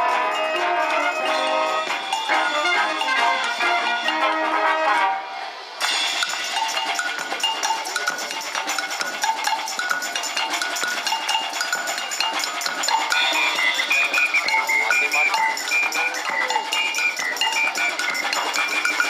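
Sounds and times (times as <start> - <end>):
percussion strikes: 0.0 - 4.8, 5.8 - 19.0
wind band playing: 0.0 - 7.4, 12.1 - 19.0.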